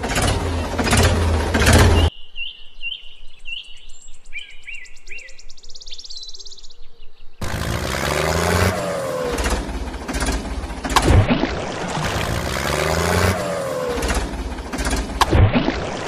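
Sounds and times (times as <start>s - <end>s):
loud engine: 0.0s - 2.1s, 7.4s - 16.0s
birds chirping: 0.4s - 8.2s.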